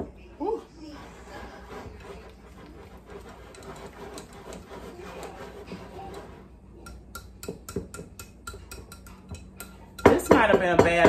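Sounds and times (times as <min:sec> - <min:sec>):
whisk stirring dough: 0:00.0 - 0:11.0
whisk clinking against glass bowl: 0:06.8 - 0:11.0.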